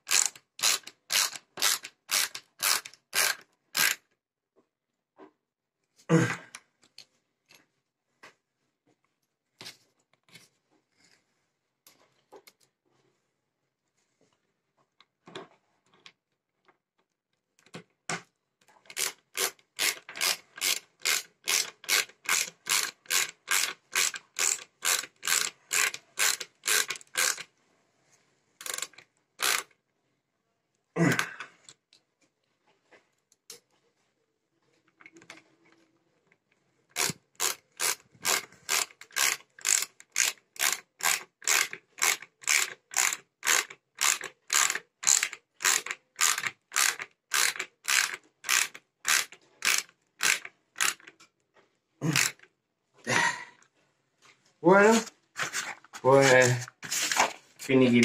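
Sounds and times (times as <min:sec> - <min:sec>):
ratcheting screwdriver clicking: 0:00.1 - 0:04.0, 0:18.9 - 0:27.5, 0:28.6 - 0:29.7, 0:37.0 - 0:51.2, 0:52.2 - 0:52.5.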